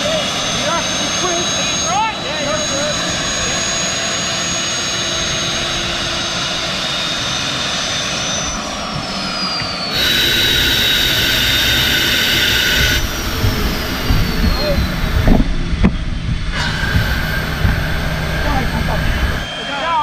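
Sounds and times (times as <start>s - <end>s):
high turbine whine: 0.0s - 20.0s
jet engine roar: 0.0s - 20.0s.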